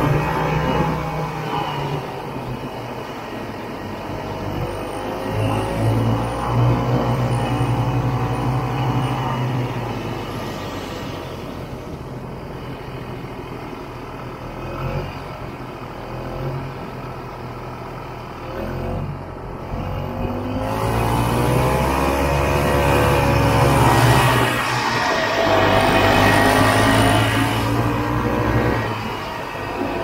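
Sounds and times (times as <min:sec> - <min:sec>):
snowmobile engine running: 0:20.7 - 0:30.0.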